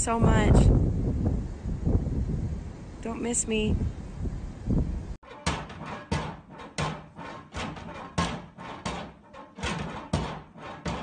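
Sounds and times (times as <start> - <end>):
sharp thumps: 5.2 - 11.0.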